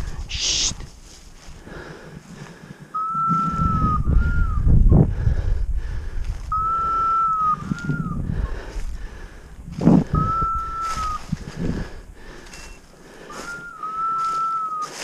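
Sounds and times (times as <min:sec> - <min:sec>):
hunter's whistle call: 0:02.9 - 0:04.7, 0:06.5 - 0:08.3, 0:10.1 - 0:11.3, 0:12.6 - 0:15.0.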